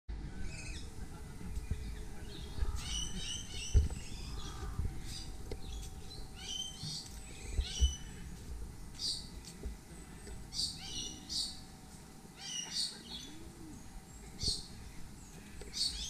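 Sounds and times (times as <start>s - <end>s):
birds chirping: 0.1s - 16.0s
low rumble: 0.2s - 12.4s
dull thumps: 3.1s - 5.6s.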